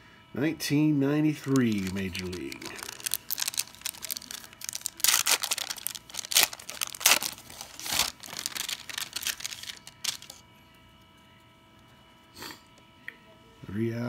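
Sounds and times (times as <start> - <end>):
foil wrapper tearing and crinkling: 1.5 - 10.4.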